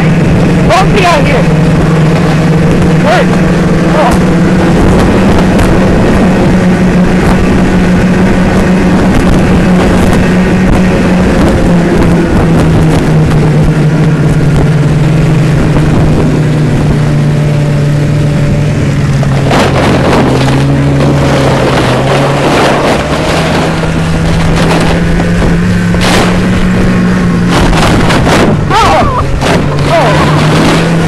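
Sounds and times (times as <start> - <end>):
snowmobile engine running: 0.0 - 31.0
wind buffeting microphone: 0.0 - 31.0
knocks and scraping: 19.1 - 31.0.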